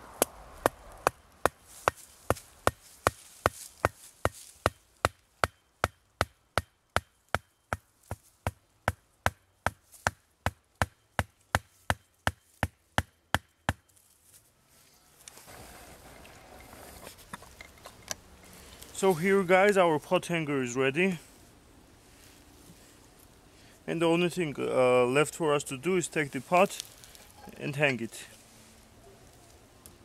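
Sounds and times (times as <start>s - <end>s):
hatchet knocking wooden stake: 0.2s - 13.9s.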